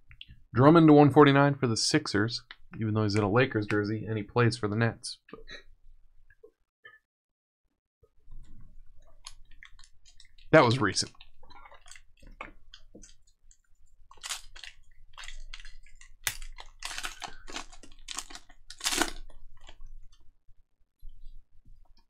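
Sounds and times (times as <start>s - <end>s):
foil wrapper crinkling and tearing: 14.1s - 19.8s.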